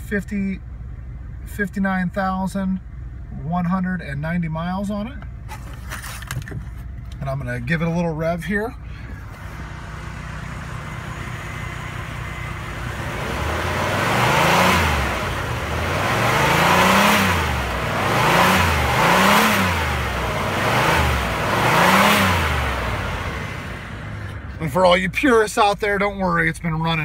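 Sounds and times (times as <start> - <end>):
car engine idling and revving: 0.0 - 27.0.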